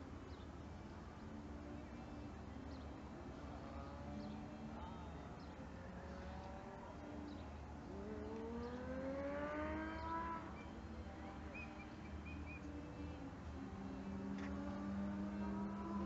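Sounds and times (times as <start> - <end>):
outdoor background noise: 0.0 - 16.0
vehicle engine accelerating: 5.8 - 12.7, 13.5 - 16.0.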